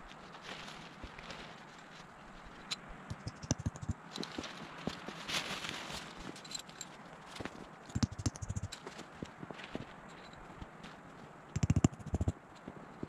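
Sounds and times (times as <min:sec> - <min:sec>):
crunching in snow: 0:00.0 - 0:11.4
rustling crunch: 0:00.0 - 0:13.0
sharp knocks and thuds: 0:03.1 - 0:04.0, 0:08.0 - 0:08.8, 0:11.6 - 0:12.4.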